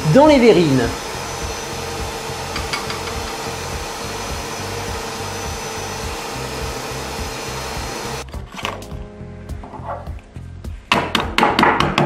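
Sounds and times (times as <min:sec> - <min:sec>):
kitchen mixer motor whine: 0:00.0 - 0:08.3.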